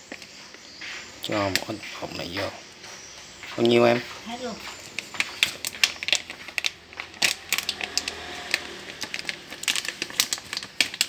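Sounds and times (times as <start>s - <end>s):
plastic packet crinkling: 4.6s - 11.0s.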